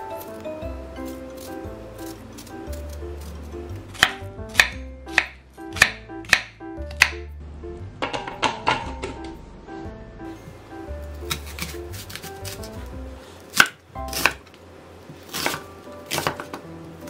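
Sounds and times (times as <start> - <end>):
background music: 0.0 - 17.0
knife chopping on wooden board: 3.9 - 7.2, 11.2 - 12.9, 13.5 - 14.4, 15.2 - 16.6.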